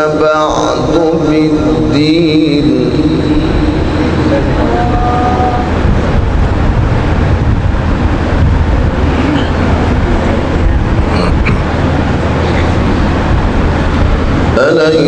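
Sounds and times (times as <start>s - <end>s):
low recording hum and hiss: 0.0s - 15.0s
person reciting held note: 4.0s - 5.8s.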